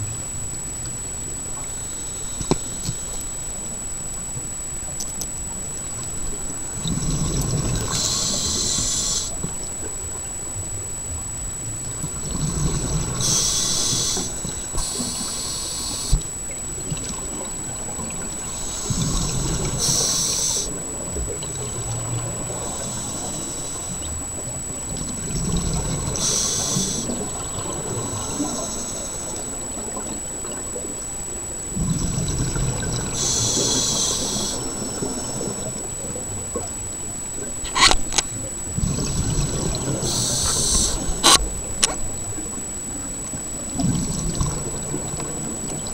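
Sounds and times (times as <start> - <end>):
regulator inhale hiss: 1.6 - 3.6, 6.8 - 9.5, 12.3 - 16.3, 18.4 - 20.8, 21.7 - 24.2, 25.6 - 27.3, 27.9 - 29.6, 31.8 - 36.1, 38.8 - 41.8
exhaled bubbles gurgling: 5.5 - 45.9.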